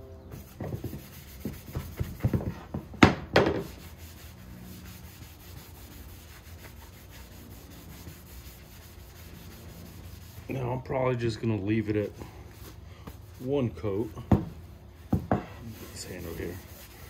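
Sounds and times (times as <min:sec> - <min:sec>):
paper towel rubbing wood: 0:00.3 - 0:02.6, 0:03.6 - 0:10.8, 0:15.6 - 0:17.0.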